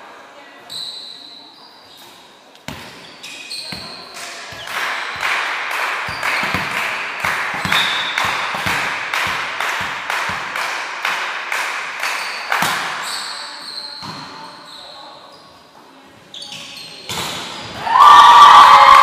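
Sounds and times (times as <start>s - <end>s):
rhythmic clapping: 4.2s - 12.8s.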